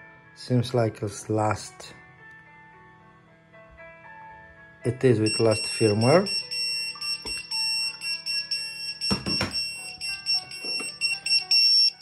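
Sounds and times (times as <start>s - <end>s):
pager alert tones: 5.3s - 12.0s.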